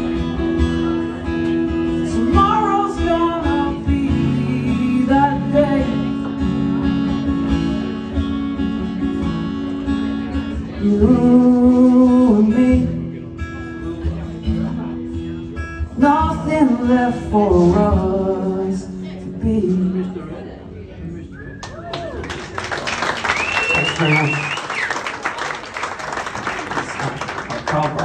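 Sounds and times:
acoustic guitar strumming: 0.0 - 20.4
man singing: 1.9 - 6.6, 10.6 - 13.3, 15.9 - 20.4.

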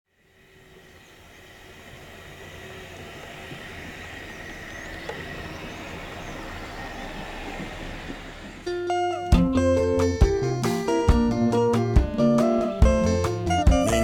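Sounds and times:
vehicle running hum: 0.1 - 14.0
faint bird chirps: 0.2 - 8.5.

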